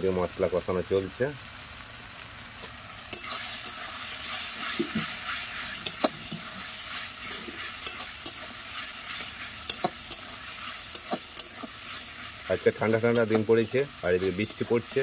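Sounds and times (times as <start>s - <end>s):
paste sizzling in oil: 0.0s - 15.0s
metal spatula scraping pan: 3.1s - 15.0s.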